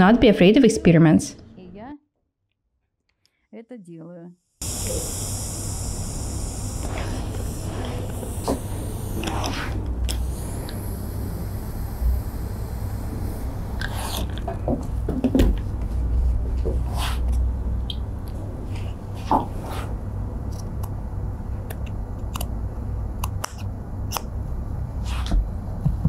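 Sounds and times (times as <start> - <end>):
steady low hum: 3.9 - 26.0.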